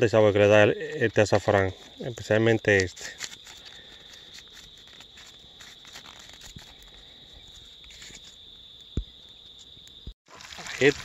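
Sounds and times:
paper sachet crinkling: 2.8s - 8.3s, 10.3s - 11.0s.

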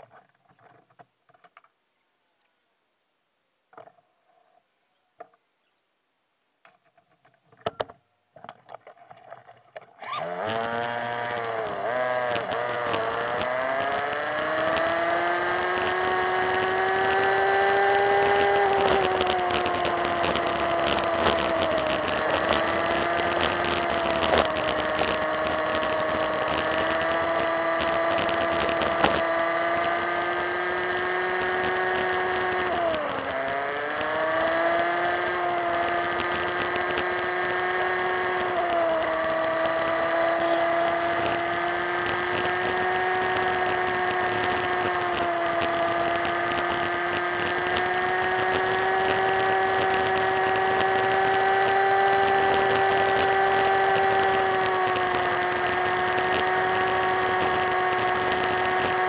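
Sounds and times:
motorbike engine revving: 10.0s - 59.0s.

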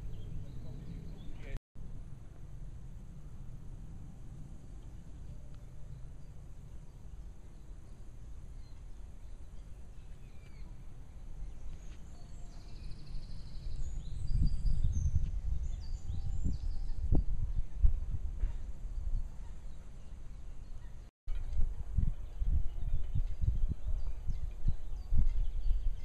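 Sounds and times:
small birds chirping: 0.0s - 1.6s, 4.7s - 21.1s
wind rumbling on microphone: 0.0s - 26.0s.

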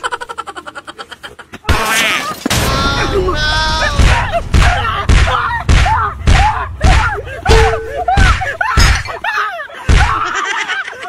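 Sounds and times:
punches landing on a body: 9.9s - 10.3s.

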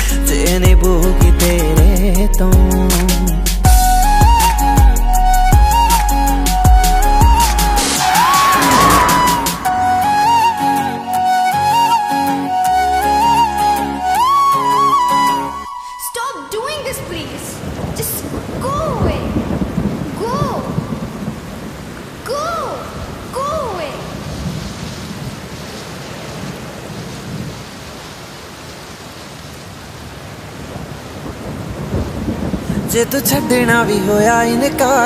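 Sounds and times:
person singing: 0.0s - 3.9s, 32.7s - 35.0s
instrumental backing music: 0.0s - 16.0s
thunder rumbling: 7.1s - 10.8s, 16.7s - 22.2s, 30.6s - 34.4s
rain hissing: 7.5s - 10.8s, 16.6s - 34.4s
held high melody note: 7.8s - 12.5s.

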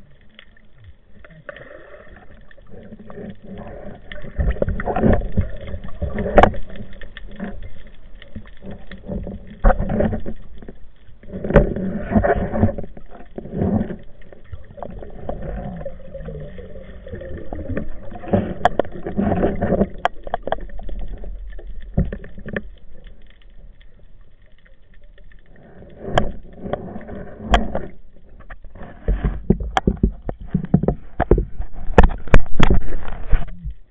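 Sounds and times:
muffled underwater water rushing: 0.0s - 33.9s
sharp clicks and knocks: 26.1s - 33.8s.

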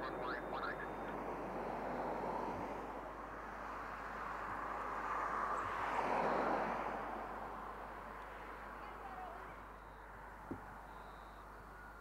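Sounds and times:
distant jet engine rush and whine: 0.0s - 8.6s.

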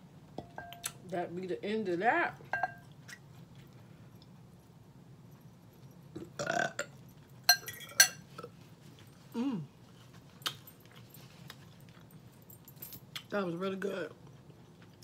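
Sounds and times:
metal fork clinking glass bowl: 2.5s - 2.9s, 7.5s - 8.2s
person burping: 6.2s - 6.9s.

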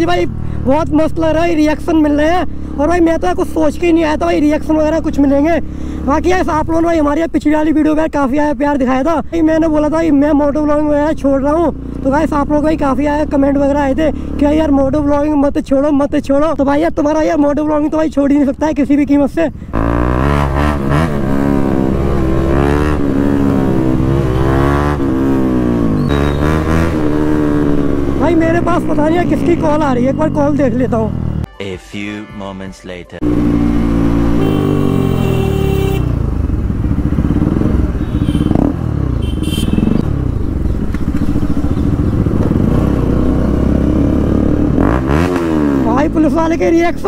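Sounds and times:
motorcycle engine revving: 9.5s - 15.4s, 19.6s - 31.5s, 33.2s - 47.0s.

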